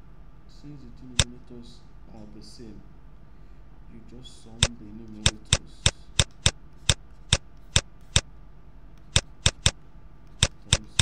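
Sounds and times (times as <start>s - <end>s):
faint steady hum: 0.0s - 11.0s
sharp mouse clicks: 1.2s - 1.4s, 4.6s - 8.3s, 9.0s - 11.0s.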